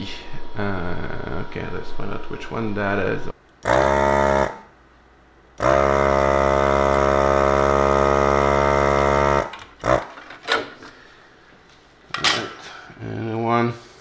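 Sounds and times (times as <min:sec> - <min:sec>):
vacuum pump buzzing: 0:03.6 - 0:04.7, 0:05.6 - 0:10.8.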